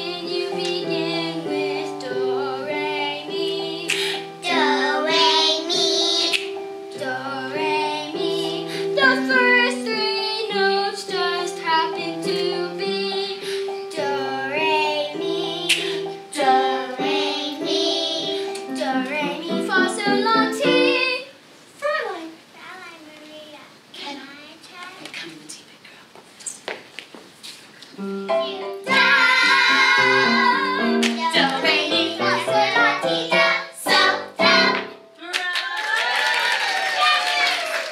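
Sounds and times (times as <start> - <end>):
girl singing with vibrato: 0.0 - 21.4.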